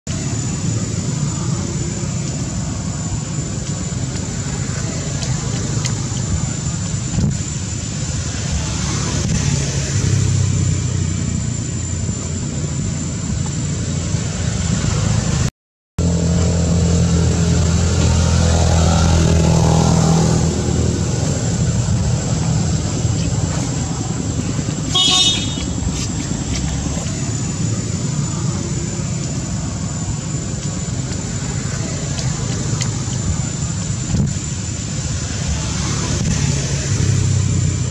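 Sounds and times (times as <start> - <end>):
road traffic noise: 0.0 - 37.9
engine running loudly: 0.1 - 37.9
high-pitched horn toot: 24.9 - 25.8.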